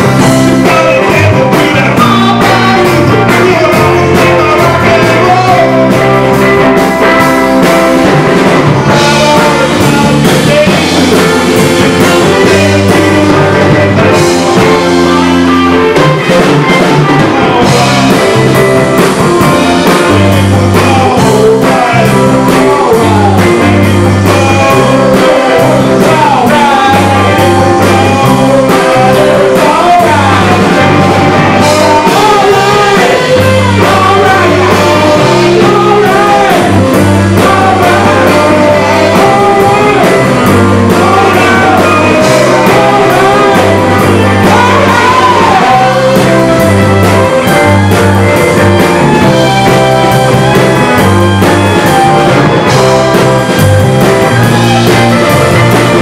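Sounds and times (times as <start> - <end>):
drum kit: 0.0 - 56.0
electric bass: 0.0 - 56.0
electric guitars: 0.0 - 56.0
man singing: 0.0 - 56.0.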